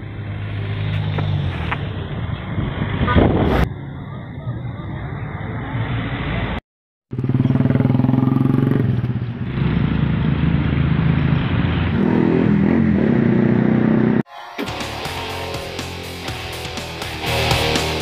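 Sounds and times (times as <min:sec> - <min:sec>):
motorcycles passing: 0:00.0 - 0:14.2.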